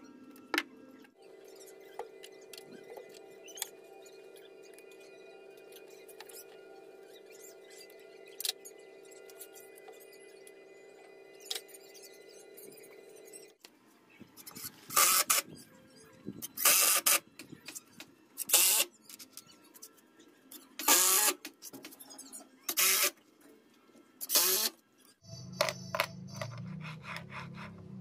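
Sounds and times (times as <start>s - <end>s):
drill driving screws into wood: 14.9s - 15.4s, 16.6s - 17.2s, 20.8s - 21.4s, 22.7s - 23.1s, 24.2s - 24.8s.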